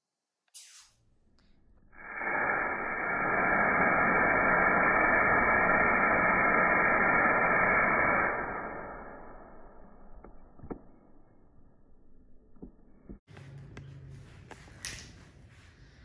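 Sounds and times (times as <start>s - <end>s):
aerosol spray can hissing: 0.5s - 1.0s, 2.0s - 8.6s.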